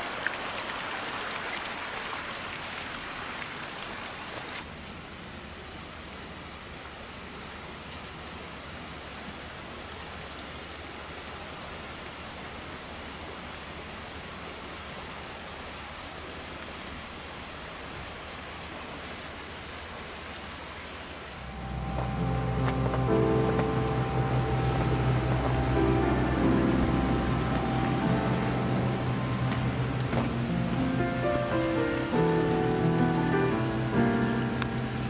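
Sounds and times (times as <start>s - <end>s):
flowing water rushing: 0.0s - 35.0s
background music: 21.4s - 35.0s.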